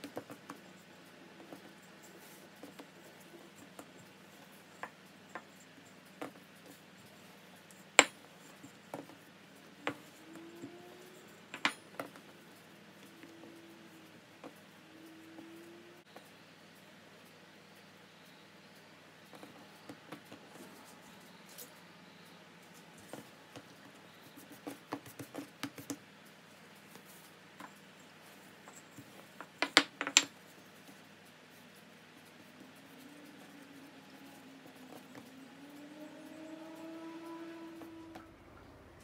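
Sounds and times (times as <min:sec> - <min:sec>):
faint rising tone: 0:32.4 - 0:39.0.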